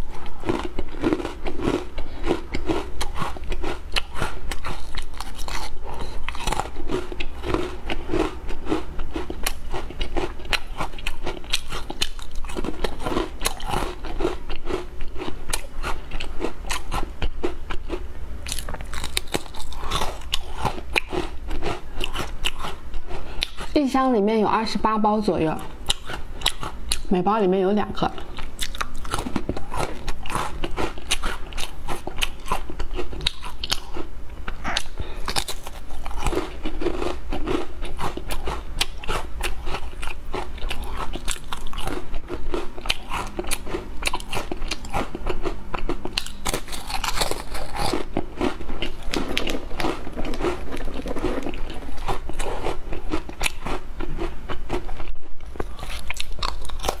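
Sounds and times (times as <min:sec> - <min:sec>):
biscuits crunching when chewed: 0:00.0 - 0:23.8, 0:25.6 - 0:27.1, 0:28.1 - 0:57.0.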